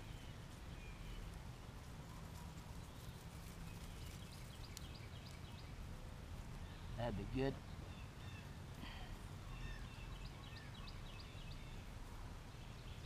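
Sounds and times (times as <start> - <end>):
low outdoor rumble: 0.0 - 13.0
plant clump crackling: 1.1 - 5.4.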